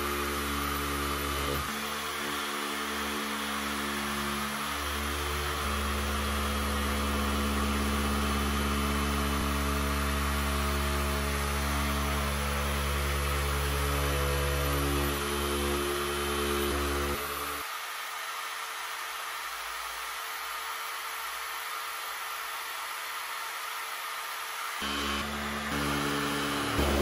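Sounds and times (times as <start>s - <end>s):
electric metal shear motor hum: 0.0s - 17.6s, 24.8s - 27.0s.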